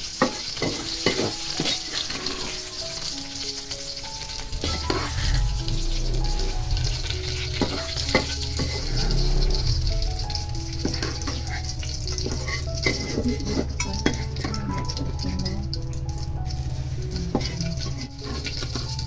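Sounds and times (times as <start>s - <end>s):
hot oil sizzling in a wok: 0.0s - 19.0s
low rumble: 4.1s - 19.0s.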